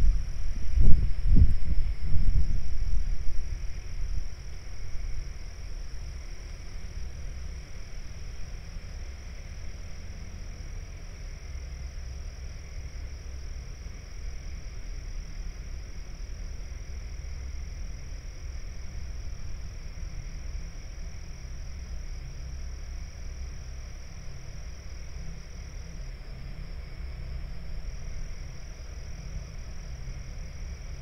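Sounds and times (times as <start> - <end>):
low rumble: 0.0 - 7.8
insects calling: 0.0 - 31.0.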